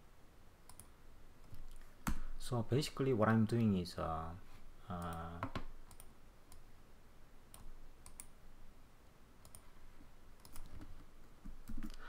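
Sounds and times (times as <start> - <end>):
computer keyboard and mouse clicks: 0.7 - 2.2, 5.0 - 6.6, 7.5 - 8.3, 9.4 - 9.7, 10.4 - 12.0.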